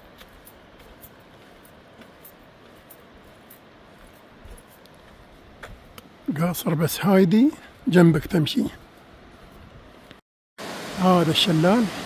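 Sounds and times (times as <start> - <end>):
footsteps on pavement: 0.0 - 6.3, 7.5 - 10.2.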